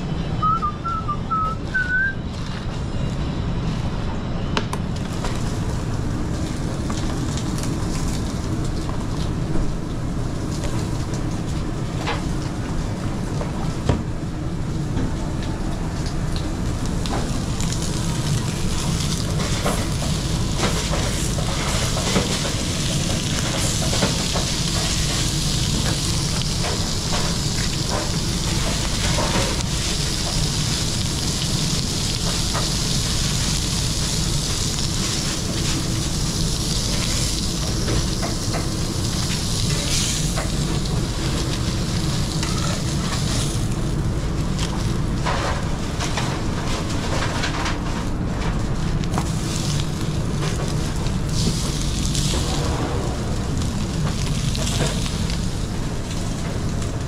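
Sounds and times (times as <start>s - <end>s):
food sizzling in a frying pan: 16.8s - 44.1s, 49.2s - 56.8s
low rumble: 47.1s - 57.0s.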